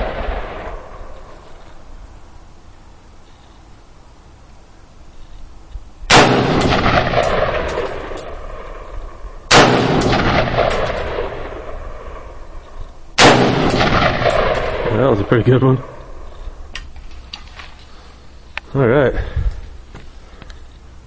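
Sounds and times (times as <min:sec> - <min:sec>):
rifle shots with echoes: 0:00.0 - 0:01.4, 0:06.1 - 0:16.6.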